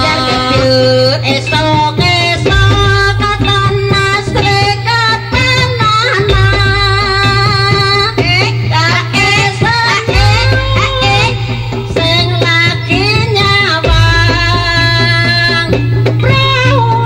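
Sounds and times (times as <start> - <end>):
busy drumming: 0.0 - 17.0.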